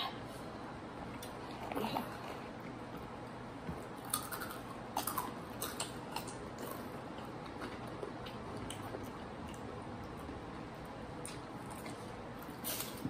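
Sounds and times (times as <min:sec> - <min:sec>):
people chewing crunchy chips: 0:03.8 - 0:13.0.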